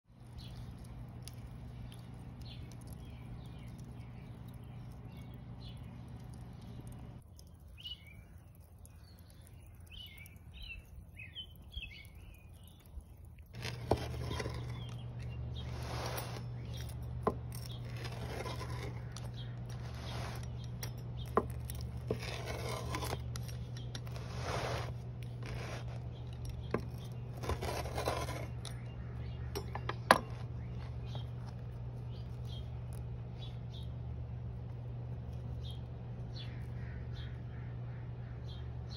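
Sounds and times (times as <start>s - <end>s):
birds chirping: 0.1s - 38.9s
steady low hum: 0.1s - 38.9s
pizza cutter crunching crust: 11.3s - 33.8s.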